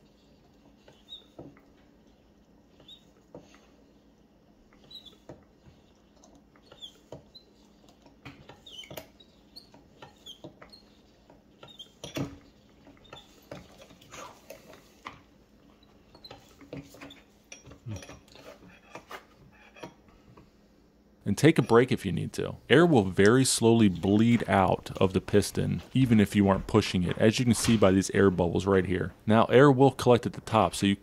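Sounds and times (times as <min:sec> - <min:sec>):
short high squeaks: 0:02.7 - 0:03.4, 0:04.8 - 0:05.9.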